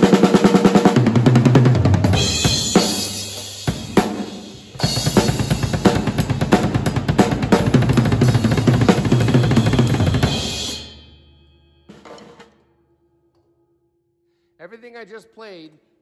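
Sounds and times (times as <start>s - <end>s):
drum kit played fast: 0.0s - 11.2s
cymbals ringing: 10.2s - 12.1s.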